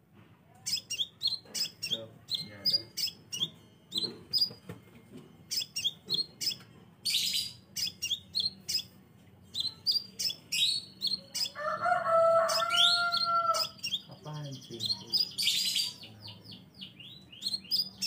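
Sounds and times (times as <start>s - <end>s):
bird chirping: 0.6s - 18.0s
harsh rasping bird call: 9.9s - 14.1s.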